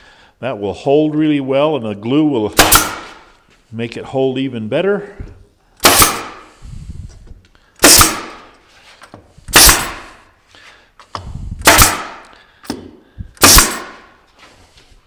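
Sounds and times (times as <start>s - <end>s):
pneumatic stapler firing: 2.6s - 3.2s, 5.8s - 6.5s, 7.8s - 8.5s, 9.5s - 10.2s, 11.6s - 14.1s.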